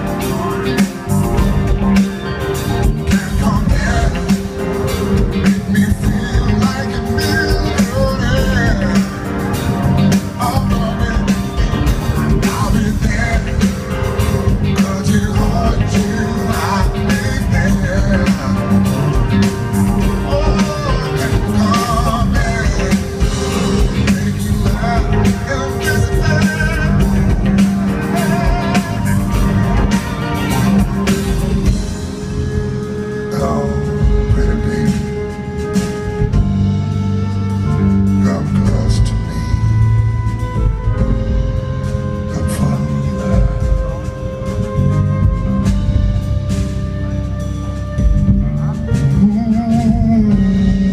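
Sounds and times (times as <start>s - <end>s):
live soul band playing: 0.0s - 50.9s
man singing into microphone: 3.0s - 19.4s, 20.0s - 29.4s, 33.0s - 35.6s, 38.1s - 40.0s, 42.2s - 44.1s, 48.4s - 50.9s.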